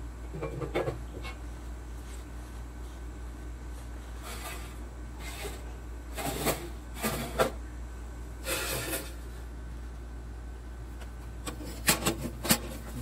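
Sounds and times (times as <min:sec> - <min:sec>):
metal grates scraping: 0:04.2 - 0:07.6, 0:08.4 - 0:09.2, 0:11.5 - 0:13.0.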